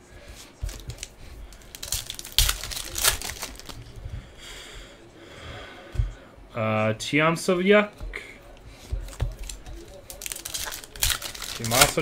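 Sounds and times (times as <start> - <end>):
soft rustling: 0.0 - 6.5, 7.5 - 12.0
foil wrapper crinkling and tearing: 0.6 - 4.0, 9.2 - 12.0.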